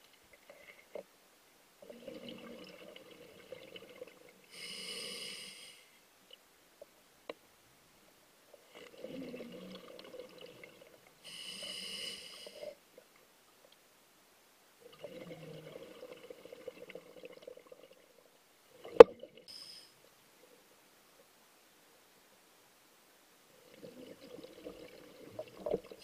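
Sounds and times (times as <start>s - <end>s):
bubbling underwater exhale: 1.8s - 4.8s, 8.8s - 12.7s, 14.9s - 18.0s, 23.7s - 26.0s
regulator hissing inhale: 4.5s - 6.0s, 11.2s - 12.8s, 19.5s - 20.0s.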